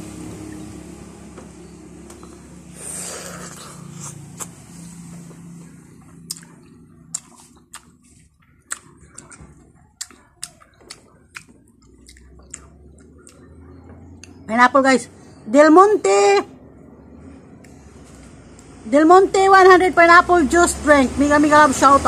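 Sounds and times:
biting into fruit: 2.8 - 4.6, 6.1 - 13.6
chewing and sucking: 2.8 - 4.6, 6.2 - 13.6
wet mouth smacks and clicks: 6.2 - 8.0, 8.7 - 13.5.

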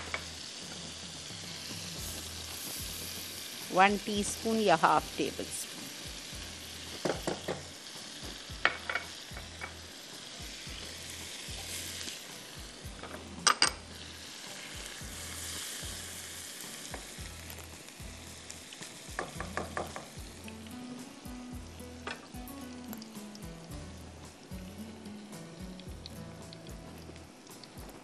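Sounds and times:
garlic sizzling in butter: 0.0 - 28.0
spatula tapping a wok: 7.0 - 9.8, 19.1 - 20.3.

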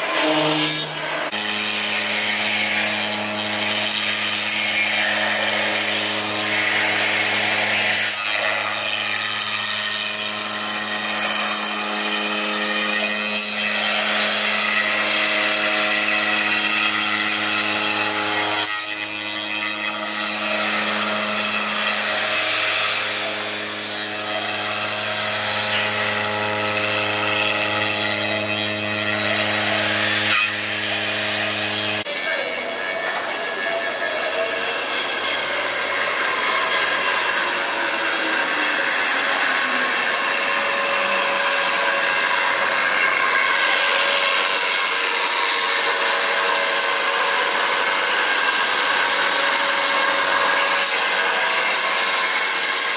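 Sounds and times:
spindle motor hum: 0.0 - 52.9.

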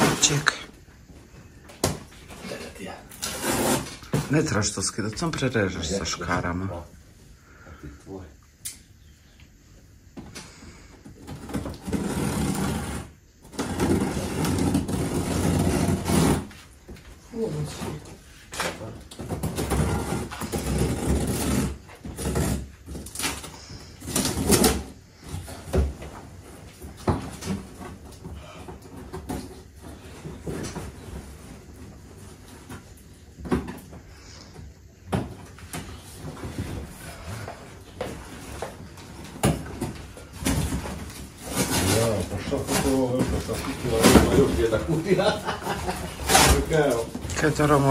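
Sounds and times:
tape and cardboard ripping: 2.5 - 4.2, 11.4 - 16.6, 19.3 - 25.0, 39.4 - 47.9.

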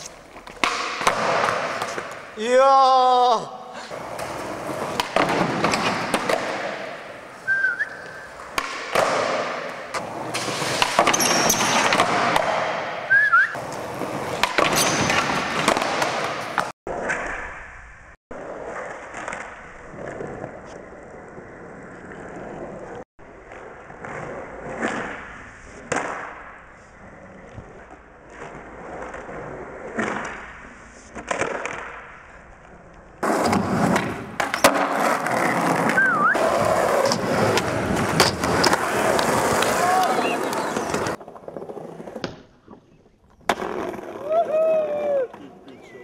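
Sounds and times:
skateboard wheels rolling on concrete: 0.0 - 46.0
skateboard clacks: 33.2 - 42.8.

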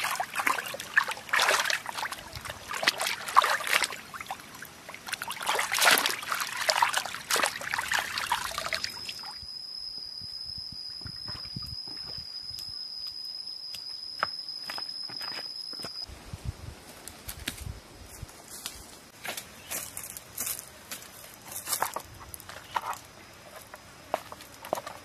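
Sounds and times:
water splashing and trickling: 0.0 - 9.4.

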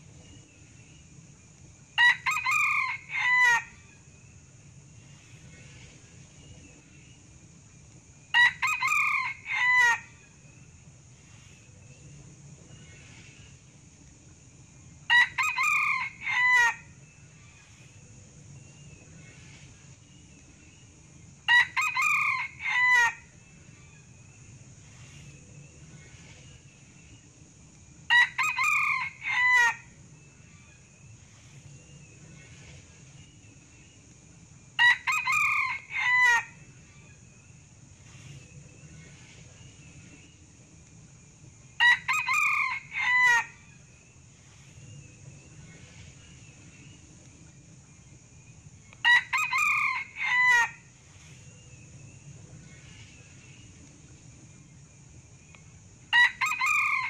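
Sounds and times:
rooster crowing: 2.0 - 3.8, 8.4 - 10.1, 15.1 - 16.9, 21.5 - 23.3, 28.1 - 29.9, 34.8 - 36.6, 41.8 - 43.6, 49.0 - 50.8, 56.1 - 57.0.

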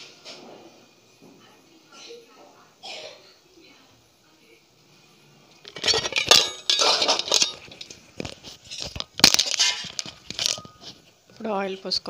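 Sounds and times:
steel kitchen utensils clattering: 5.6 - 11.0.

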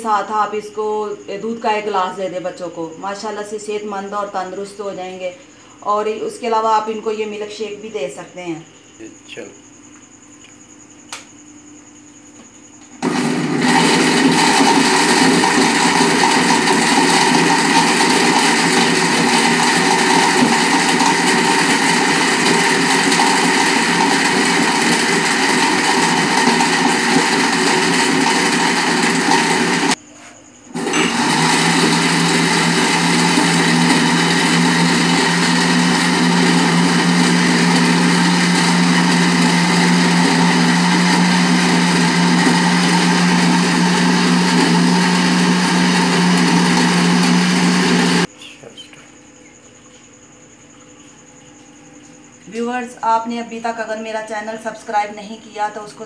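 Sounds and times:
blender whirring: 13.0 - 30.0, 30.7 - 48.3.

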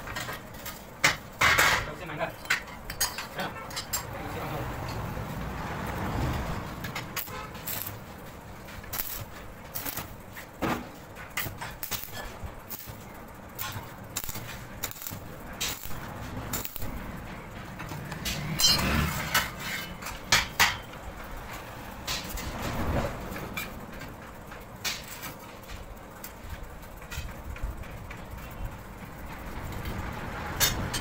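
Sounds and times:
steel pieces clanking: 6.8 - 21.0.

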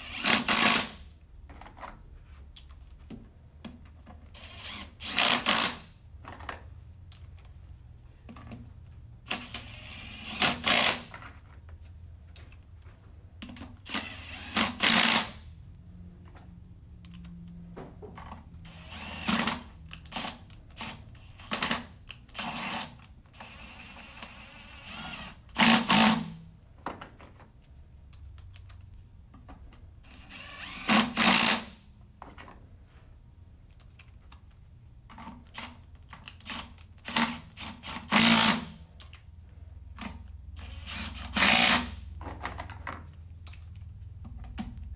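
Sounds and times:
impact driver bursts: 0.0 - 1.0, 4.4 - 5.9, 9.3 - 11.2, 13.8 - 15.4, 18.6 - 26.4, 30.0 - 31.8, 36.4 - 38.8, 40.6 - 42.0.

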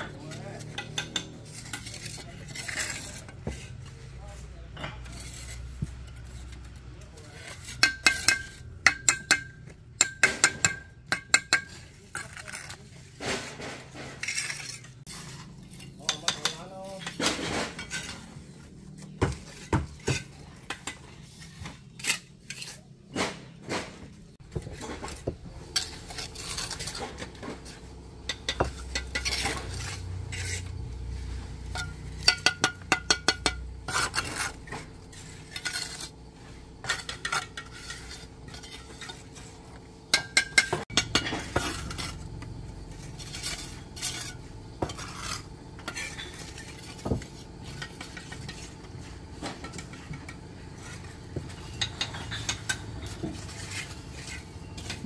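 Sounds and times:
utensils clinking against pots: 0.0 - 3.0, 13.4 - 18.3, 24.5 - 30.7, 31.5 - 36.1, 36.7 - 42.4, 43.0 - 55.0.

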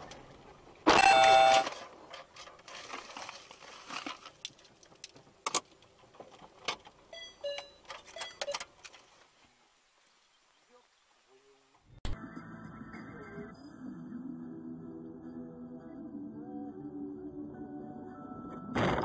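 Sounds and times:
car horn blast: 0.9 - 1.7
short electronic beeps: 0.9 - 1.7.

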